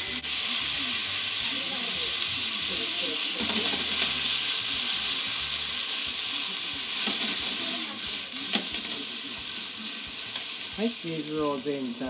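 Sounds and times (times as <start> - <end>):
noodles sizzling in hot oil: 0.0 - 12.0.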